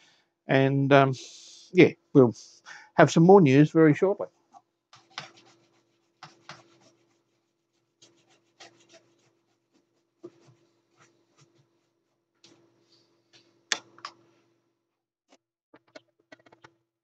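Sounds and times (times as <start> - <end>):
rubbing and scratching on circuit board: 4.4 - 14.3, 15.8 - 16.8.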